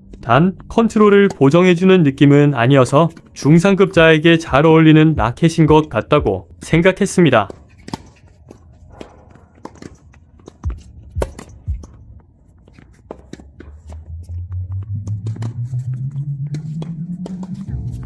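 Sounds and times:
racket hitting tennis ball: 1.0s - 1.7s, 6.5s - 18.0s
ball bouncing on hard court: 1.2s - 1.6s, 6.5s - 15.8s, 16.4s - 17.9s
pulsing background music tone: 7.5s - 18.0s.

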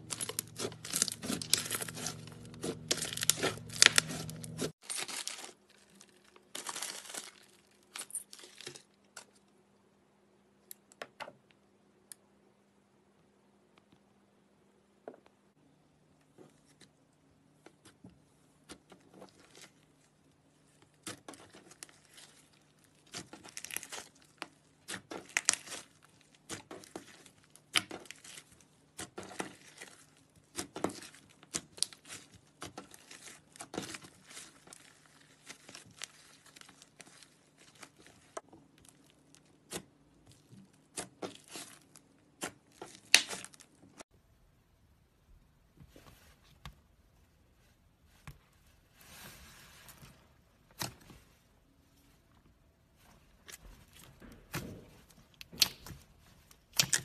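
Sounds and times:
slime crackling and popping: 0.0s - 5.3s, 21.0s - 39.8s, 42.4s - 43.7s, 56.6s - 57.0s.

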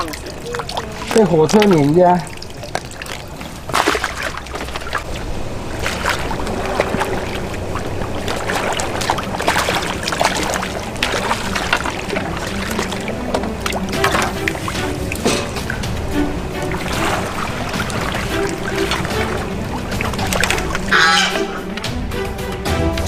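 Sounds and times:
fish splashing at water surface: 0.0s - 21.9s
steady low rumble: 0.0s - 23.0s.

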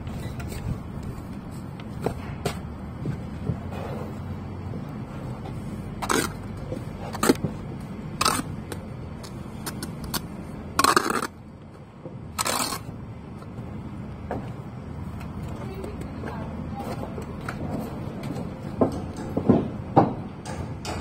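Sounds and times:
brick pieces scraping and clattering: 5.5s - 7.6s, 8.2s - 11.4s.

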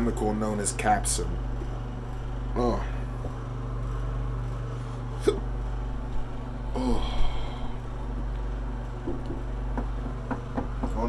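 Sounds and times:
steady low hum: 0.0s - 11.0s
man hiccuping: 5.2s - 5.5s
breathy vocal gasp: 6.7s - 7.8s.

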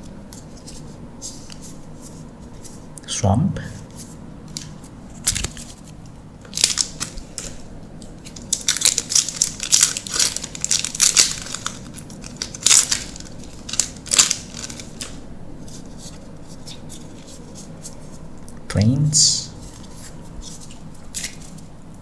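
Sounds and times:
wrapper crinkling and tearing: 4.6s - 5.9s, 6.5s - 7.6s, 8.2s - 17.3s.

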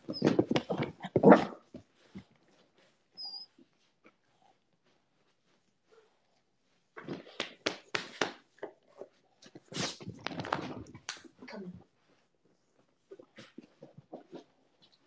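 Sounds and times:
dog scrambling on floor: 0.0s - 2.2s, 9.7s - 11.4s.

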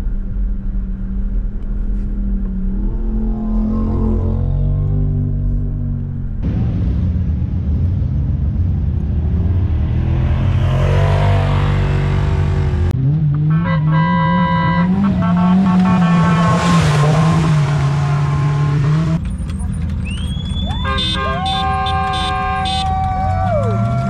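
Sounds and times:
race car engines running: 0.0s - 24.0s
race car engine revving past: 14.3s - 19.2s.

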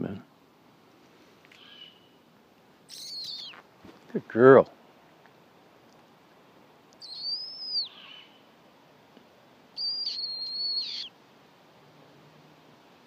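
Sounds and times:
owl screeching: 2.9s - 3.6s, 7.0s - 8.4s, 9.8s - 11.1s.

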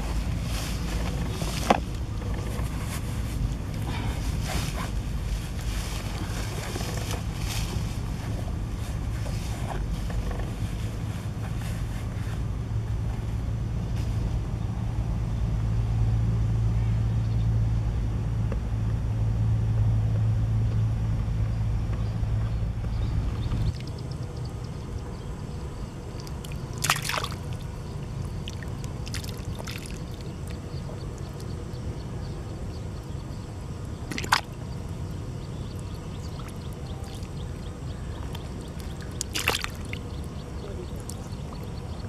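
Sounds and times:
steady low hum: 0.0s - 42.0s
muddy water pouring: 26.2s - 27.7s, 28.3s - 30.6s, 34.1s - 34.6s, 38.6s - 40.2s
fish splashing: 26.2s - 30.6s, 34.0s - 34.6s, 35.8s - 41.7s.

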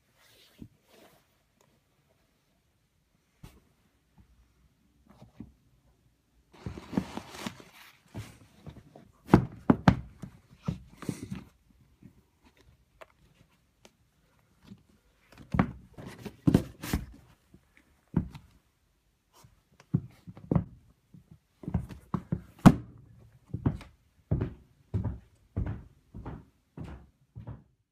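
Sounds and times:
shoes thunking on wooden floor: 8.1s - 11.5s, 15.4s - 17.2s.

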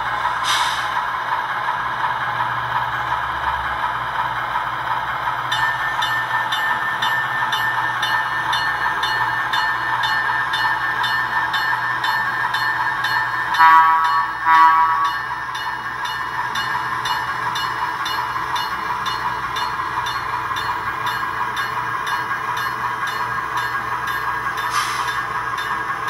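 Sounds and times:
short horn blasts: 13.6s - 15.0s.

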